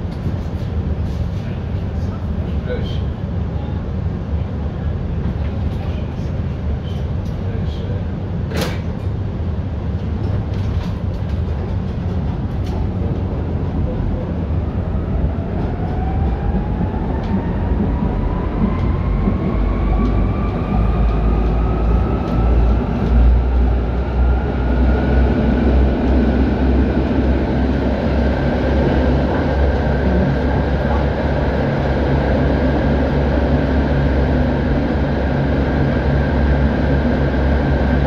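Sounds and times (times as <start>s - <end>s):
wheels rumbling on rails: 0.0s - 38.0s
tram motors whining: 12.7s - 38.0s.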